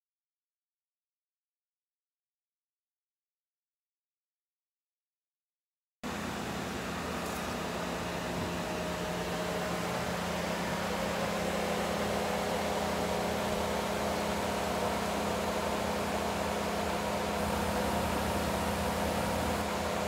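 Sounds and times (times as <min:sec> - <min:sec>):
mechanical hum of machinery: 0:06.0 - 0:20.0
hiss: 0:17.3 - 0:20.0.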